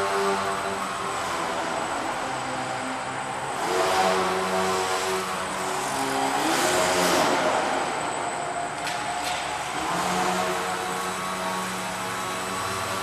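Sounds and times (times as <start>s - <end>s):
model airplane motor buzzing: 9.6s - 13.0s.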